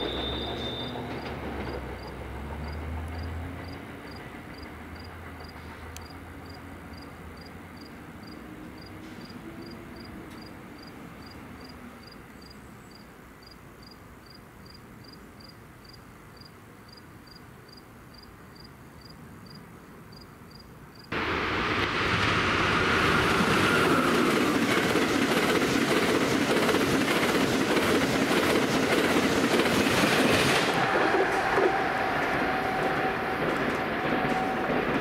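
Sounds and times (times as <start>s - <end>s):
train wheels clacking over rail joints: 0.0s - 7.0s, 24.1s - 35.0s
passenger train passing at speed: 0.0s - 13.6s, 21.1s - 35.0s
insect chirping: 10.8s - 21.1s.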